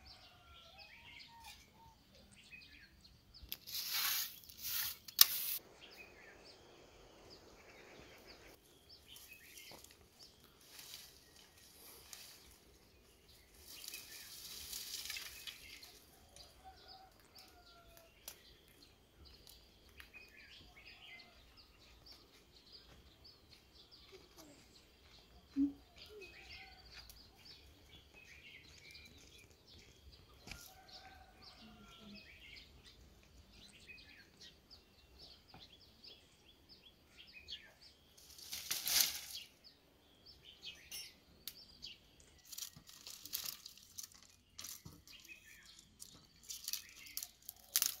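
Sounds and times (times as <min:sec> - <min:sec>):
dry brushwood rustling: 0:03.5 - 0:05.6, 0:09.0 - 0:18.4, 0:38.2 - 0:39.5, 0:42.4 - 0:48.0
bird chirps: 0:39.4 - 0:42.8.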